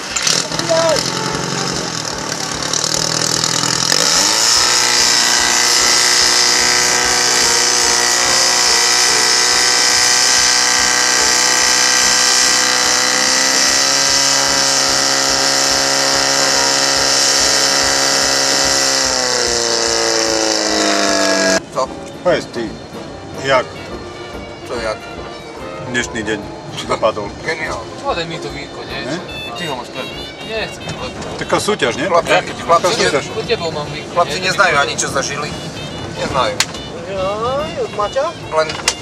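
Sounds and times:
pump engine revving: 0.0s - 21.7s.

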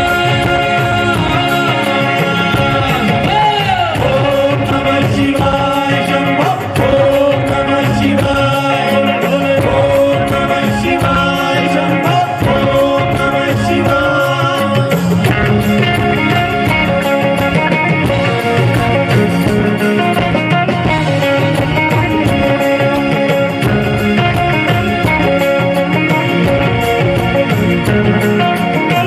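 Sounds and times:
man singing into microphone: 0.0s - 15.6s
backing band: 0.0s - 29.0s.

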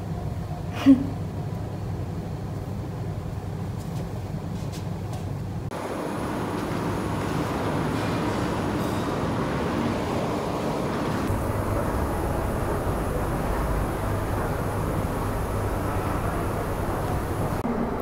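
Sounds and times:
low mechanical hum: 0.0s - 18.0s
even rushing noise: 5.7s - 18.0s.

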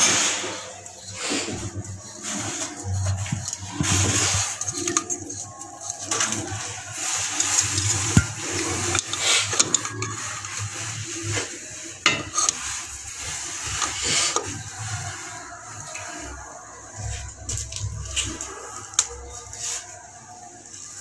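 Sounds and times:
wrench clinking and scraping on metal: 12.0s - 12.9s.

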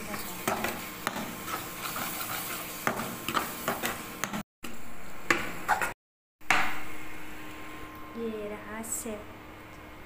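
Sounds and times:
soft sizzle: 0.0s - 4.3s
spatula scraping a pan: 0.5s - 4.0s.

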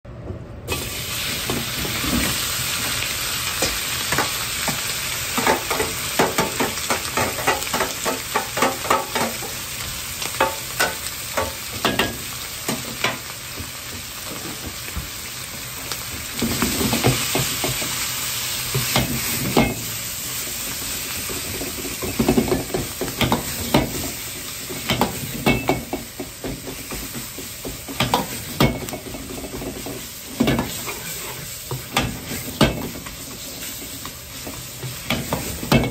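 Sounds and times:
meat sizzling in a wok: 0.7s - 35.9s
metal ladle scraping wok: 30.4s - 32.6s.

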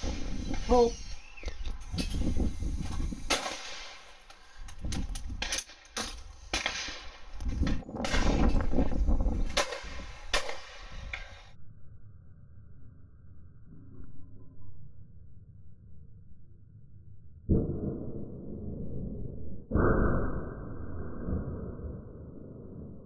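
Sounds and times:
gusty low rumble: 0.0s - 5.5s, 7.0s - 11.6s
shotgun shots: 3.3s - 4.2s, 5.4s - 7.3s, 9.4s - 11.4s.

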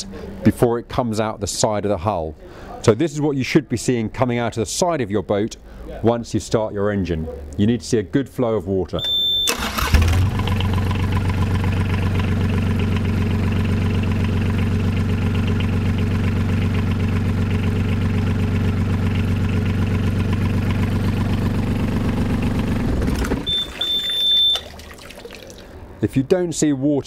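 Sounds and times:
diesel engine idling: 9.5s - 24.5s
water splashing into a tub: 23.0s - 25.8s.

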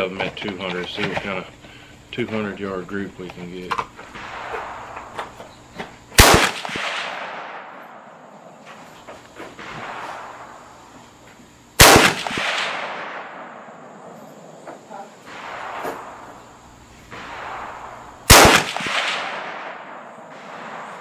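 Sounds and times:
rifle shots with echo: 4.1s - 5.4s, 6.2s - 8.8s, 9.6s - 10.9s, 11.8s - 14.2s, 15.3s - 21.0s.

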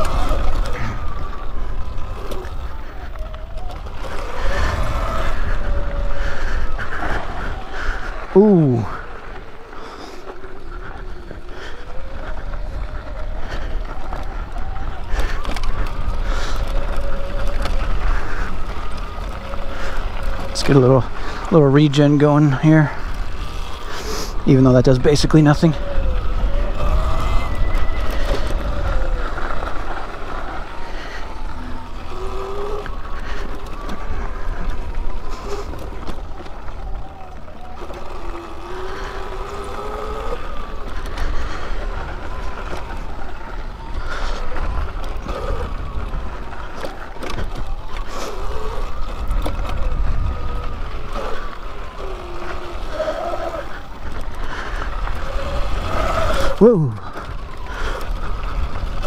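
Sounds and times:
bike knocking and rattling: 0.0s - 59.0s
wind and tyres rumbling: 0.0s - 59.0s
electric motor whining: 25.4s - 59.0s.

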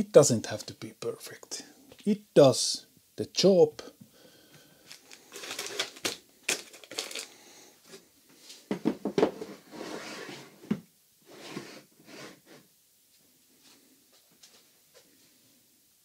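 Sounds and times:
wooden drawer sliding: 9.2s - 12.6s.

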